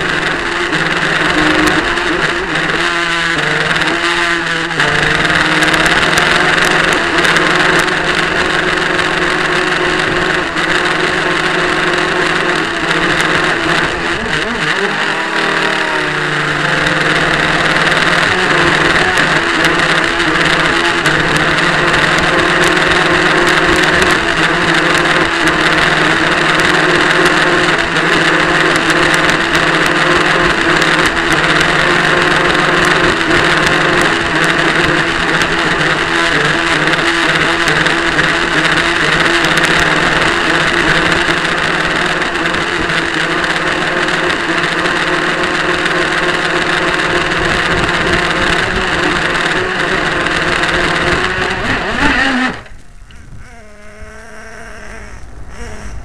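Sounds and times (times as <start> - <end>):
model boat motor running: 0.0 - 56.0.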